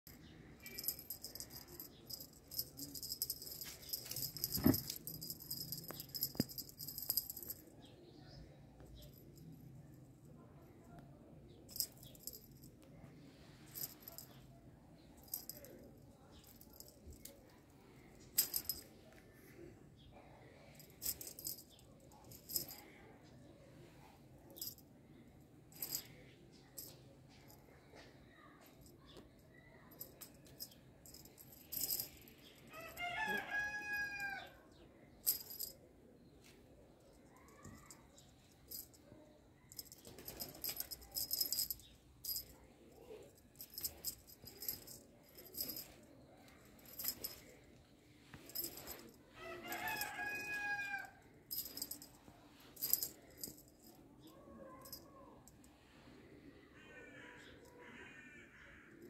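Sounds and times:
cat toy jingling and rattling: 0.1 - 7.7, 11.6 - 12.8, 13.5 - 14.5, 15.2 - 17.5, 18.2 - 18.9, 20.6 - 23.1, 24.4 - 24.8, 25.8 - 27.7, 28.6 - 34.4, 35.2 - 35.8, 37.3 - 55.6
rooster crowing: 32.7 - 34.5, 49.4 - 51.2
rustling: 43.3 - 50.2.

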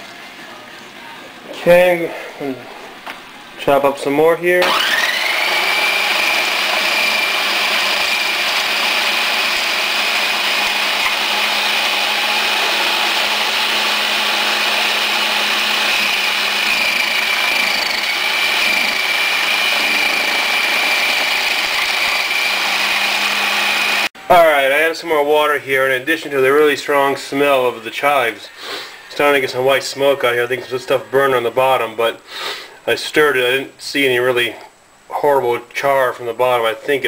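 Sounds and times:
food processor motor whine: 4.6 - 24.1.

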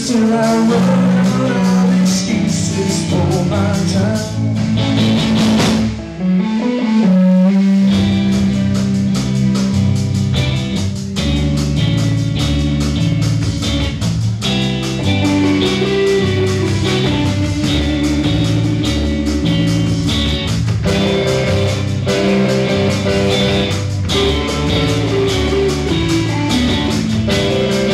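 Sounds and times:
rock band playing: 0.0 - 27.9.

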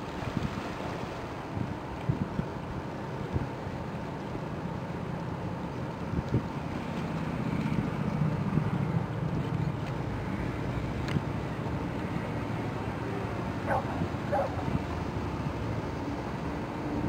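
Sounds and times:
wind buffeting microphone: 0.0 - 3.6, 13.3 - 15.4
low ship engine rumble: 0.0 - 17.0.

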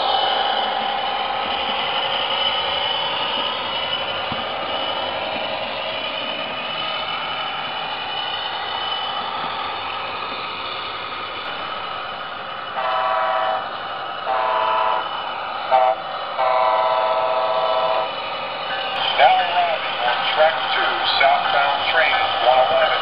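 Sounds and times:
diesel locomotive running: 0.0 - 23.0
multi-chime horn blasts: 12.8 - 13.7, 14.3 - 15.1.

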